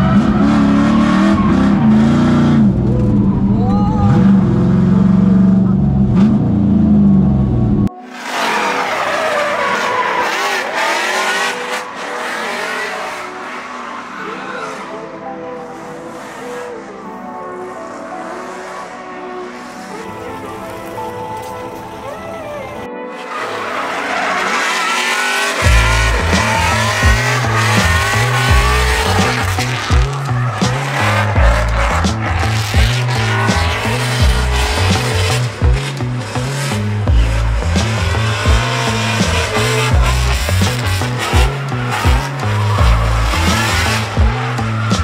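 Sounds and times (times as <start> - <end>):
car engine revving: 0.0 - 20.7, 23.2 - 45.0
tyres squealing: 23.2 - 45.0
music with heavy bass beat: 25.5 - 45.0.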